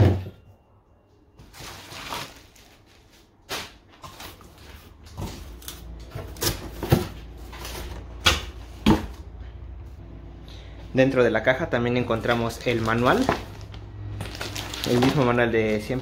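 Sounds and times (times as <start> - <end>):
packaging rustling: 1.4 - 6.0, 12.1 - 16.0.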